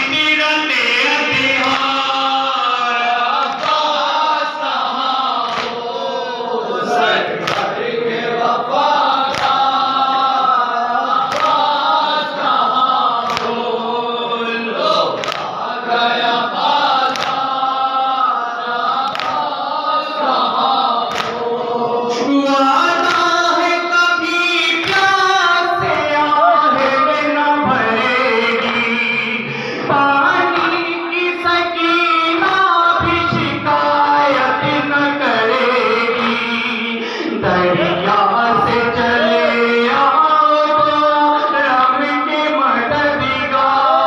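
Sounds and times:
men chanting in unison: 0:00.0 - 0:44.0.

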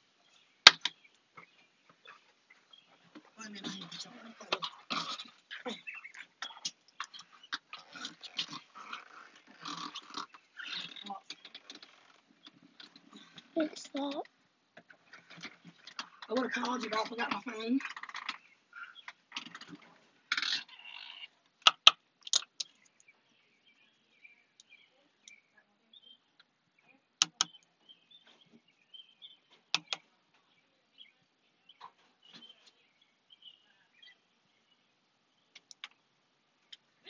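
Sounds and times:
birds chirping: 0:00.0 - 0:37.0
sharp clicks: 0:21.6 - 0:23.0, 0:27.2 - 0:27.7, 0:29.7 - 0:30.0, 0:35.5 - 0:36.0.

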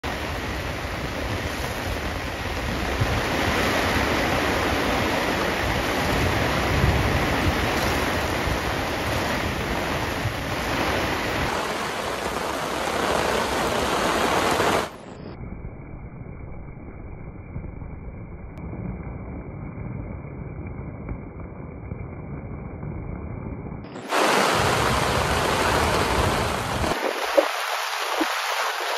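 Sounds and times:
heavy rain hiss: 0:00.0 - 0:15.2, 0:23.9 - 0:28.9
low rumble: 0:15.0 - 0:27.4.

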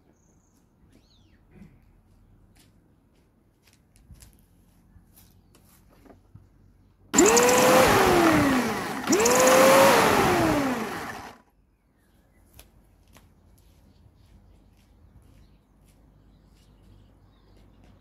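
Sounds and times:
electric mower motor whining: 0:07.1 - 0:11.4.

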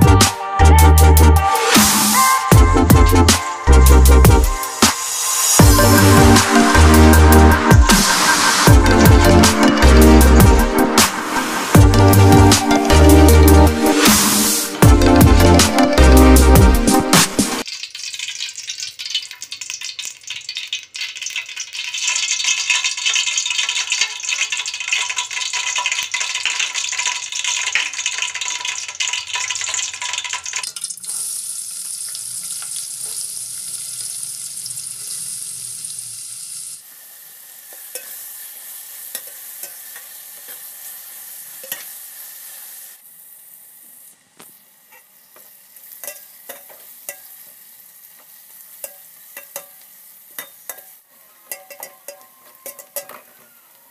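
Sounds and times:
onions sizzling in oil: 0:04.2 - 0:14.8, 0:17.6 - 0:53.9
spoon scraping pot: 0:41.5 - 0:42.0, 0:44.9 - 0:47.5, 0:48.8 - 0:53.7.

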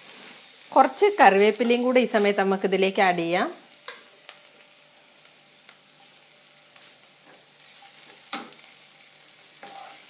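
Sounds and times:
onions sizzling in pan: 0:00.0 - 0:10.0
wooden spatula stirring and scraping: 0:09.6 - 0:10.0.

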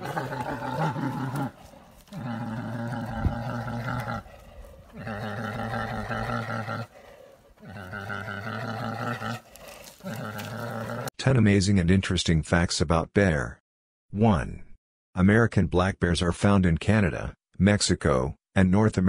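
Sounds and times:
bears growling: 0:00.0 - 0:11.1.

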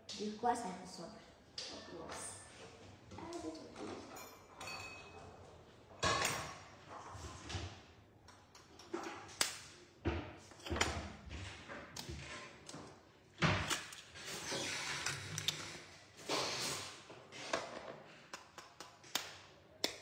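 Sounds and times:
bowls and utensils clattering: 0:03.5 - 0:07.6.

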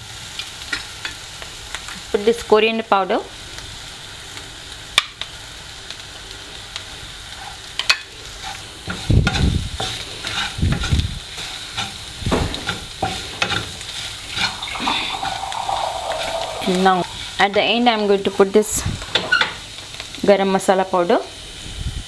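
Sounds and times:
masala sizzling in oil: 0:00.0 - 0:22.0
spatula scraping and knocking pan: 0:07.4 - 0:17.8.

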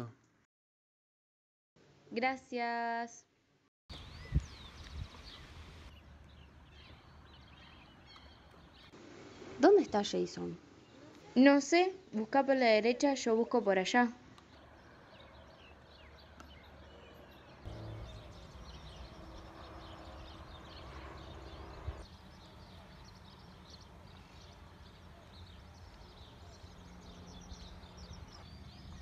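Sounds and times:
small birds chirping: 0:03.9 - 0:29.0.

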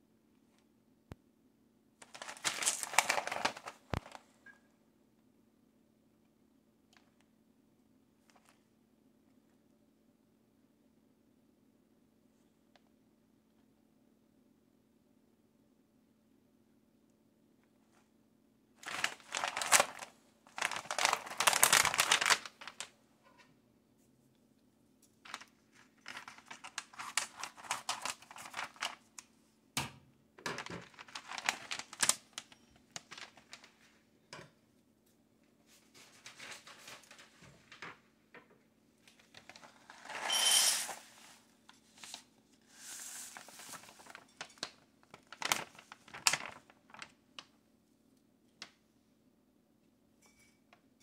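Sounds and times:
plastic pouch crinkling: 0:02.0 - 0:04.2, 0:18.8 - 0:22.9, 0:25.2 - 0:29.2, 0:30.5 - 0:33.8, 0:42.0 - 0:47.2.

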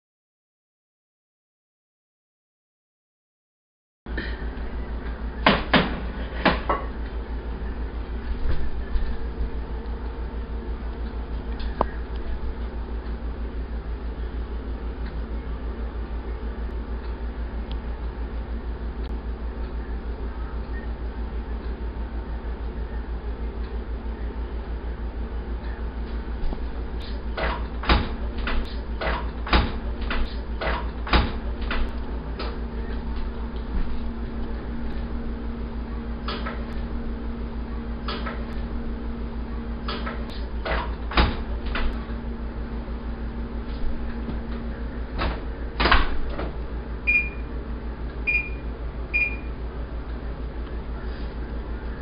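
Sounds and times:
steady low hum: 0:04.1 - 0:52.0
oven door knocks and clatter: 0:05.4 - 0:07.0, 0:27.4 - 0:31.9, 0:40.6 - 0:42.0, 0:45.2 - 0:46.6
oven door shutting: 0:26.4 - 0:35.0, 0:39.9 - 0:42.2, 0:43.7 - 0:47.4.

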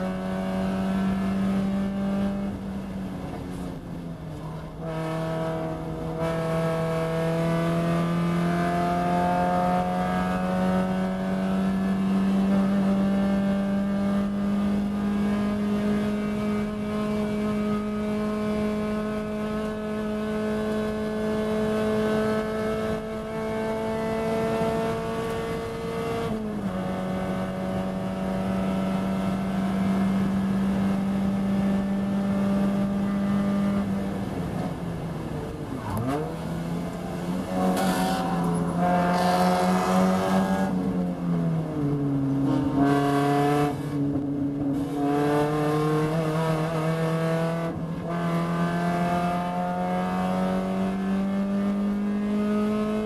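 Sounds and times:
race car engine at high revs: 0:00.0 - 0:53.0.

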